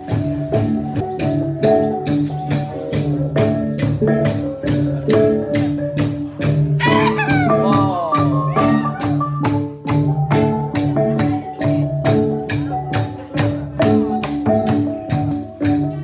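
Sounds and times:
gong ensemble playing: 0.1s - 11.8s.

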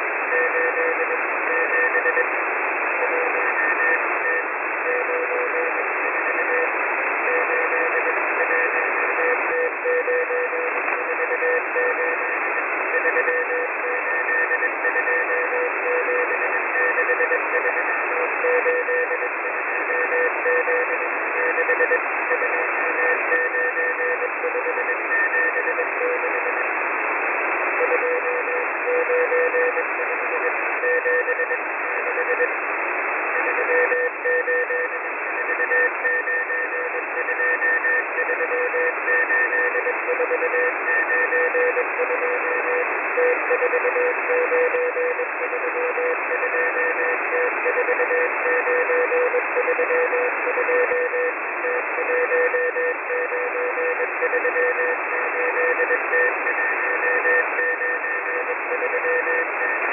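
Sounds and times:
radio static: 0.0s - 59.9s
morse code tone: 33.4s - 59.7s.

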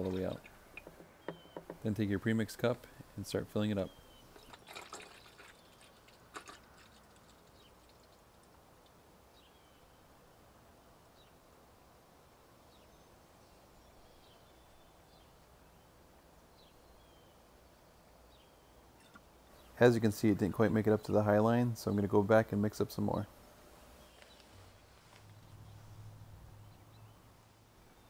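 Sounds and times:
faint bird chirps: 0.0s - 1.9s, 2.8s - 8.4s.

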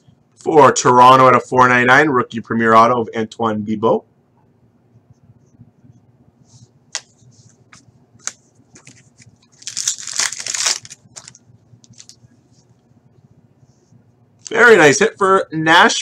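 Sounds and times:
foil wrapper crinkling: 8.2s - 12.2s.

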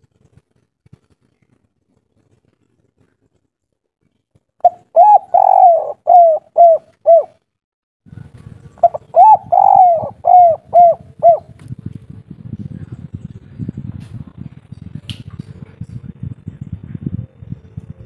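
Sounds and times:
dove cooing: 4.6s - 7.4s, 8.8s - 11.6s.

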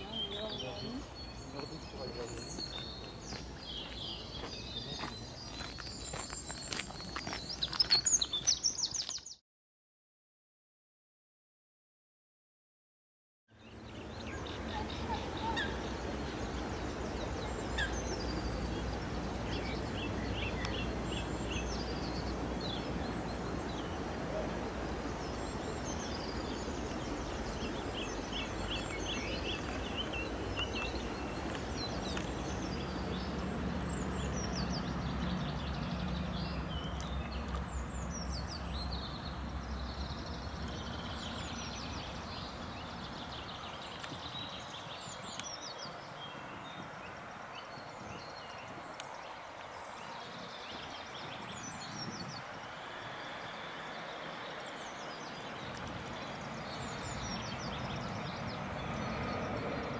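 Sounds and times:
small birds singing: 0.0s - 9.4s, 13.5s - 59.9s.

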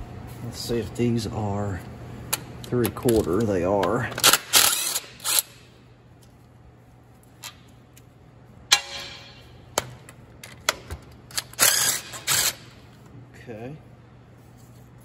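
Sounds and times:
sharp ringing metal clank: 8.7s - 9.6s.

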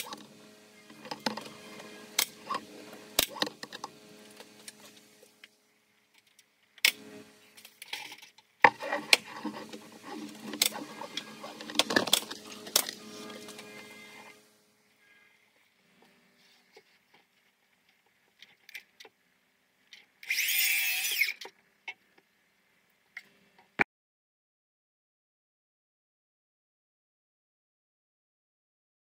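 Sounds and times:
nail gun firing: 2.1s - 3.8s.

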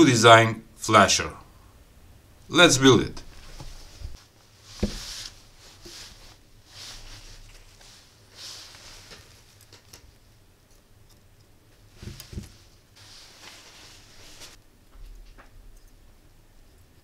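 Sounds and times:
soft knocks: 4.8s - 5.1s
light clicks and rustles: 7.2s - 16.0s.

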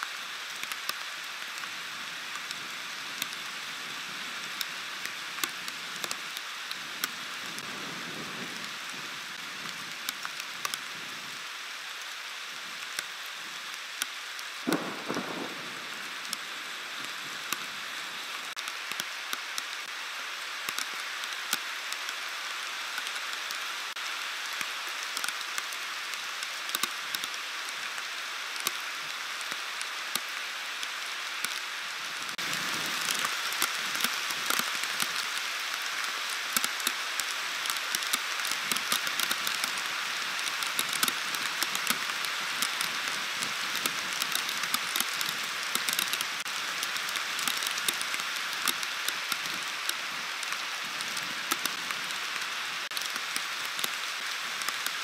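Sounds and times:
heavy rain pouring: 0.0s - 55.0s
raindrops clicking on microphone: 0.0s - 55.0s.

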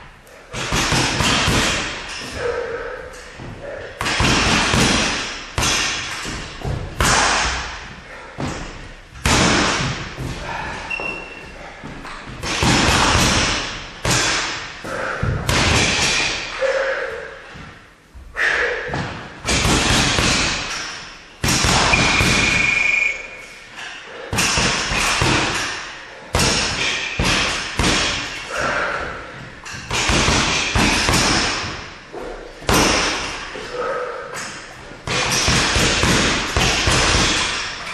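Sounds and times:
boxing gloves punching a ball: 0.5s - 2.4s, 3.4s - 11.0s, 12.3s - 16.5s, 18.9s - 22.7s, 24.3s - 32.0s, 32.6s - 33.4s, 35.0s - 37.9s.

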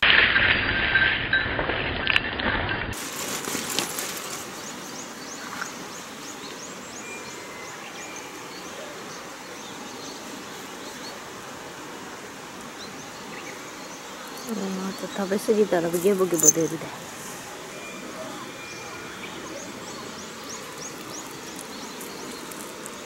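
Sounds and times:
steady background hiss: 3.0s - 23.0s
small birds chirping: 4.2s - 11.5s, 12.1s - 23.0s.

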